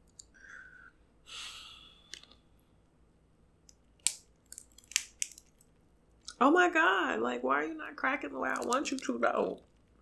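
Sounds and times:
crab shell cracking: 0:04.0 - 0:05.7, 0:08.5 - 0:09.0.

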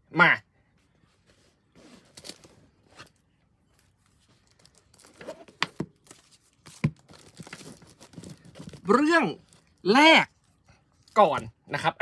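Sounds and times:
books crinkling and rustling: 0:01.1 - 0:09.8.

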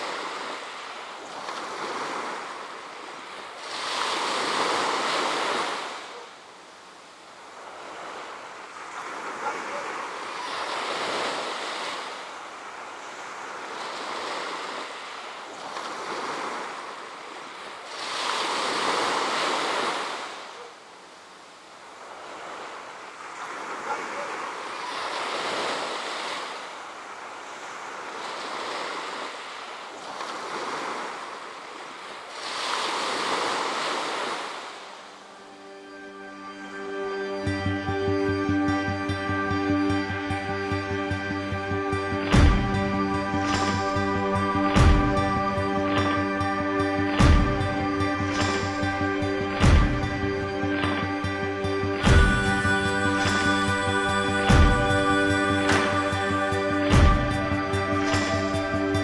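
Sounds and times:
sea waves washing onto beach: 0:00.0 - 0:59.0.

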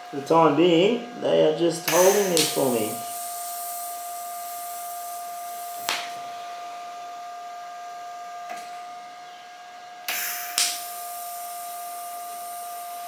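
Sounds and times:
welder arc hissing and whining: 0:00.0 - 0:13.0
sharp click: 0:01.9 - 0:02.6, 0:10.1 - 0:10.8.

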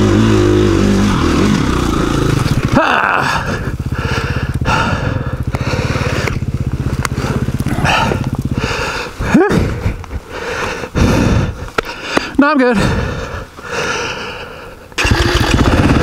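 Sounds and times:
rider crying out: 0:00.0 - 0:09.9
dirt bike engine chugging: 0:00.0 - 0:11.8, 0:12.8 - 0:16.0.

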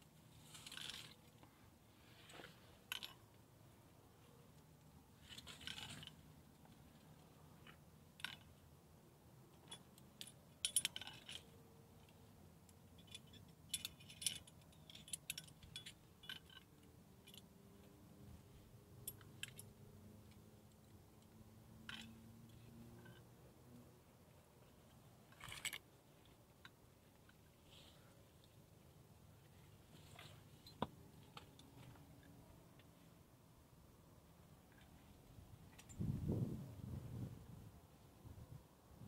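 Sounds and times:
climbing hardware clinking: 0:00.4 - 0:01.5, 0:02.2 - 0:03.4, 0:05.2 - 0:08.6, 0:09.5 - 0:18.0, 0:19.0 - 0:23.4, 0:24.3 - 0:28.6, 0:29.4 - 0:33.0, 0:34.6 - 0:36.2.

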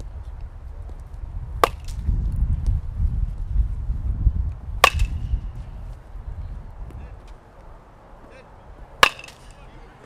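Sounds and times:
bat hitting ball: 0:01.6 - 0:02.1, 0:04.8 - 0:05.7, 0:09.0 - 0:09.6.

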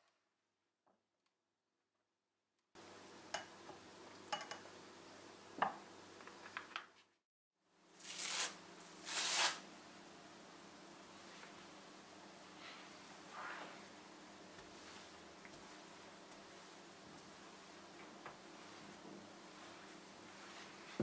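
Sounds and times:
rolling pin on dough: 0:14.6 - 0:21.0.

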